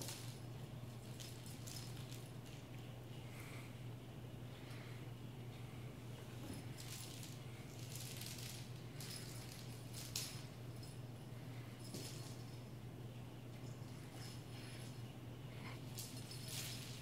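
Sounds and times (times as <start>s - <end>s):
steady low hum: 0.0s - 17.0s
small bell jingling: 6.5s - 12.8s, 15.9s - 17.0s.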